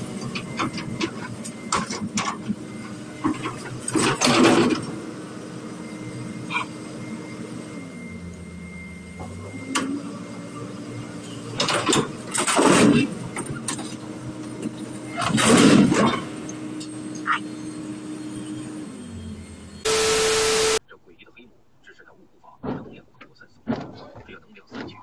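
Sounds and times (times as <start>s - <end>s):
excavator diesel engine under load: 0.0s - 20.8s
loud harsh bursts of noise: 19.9s - 20.8s.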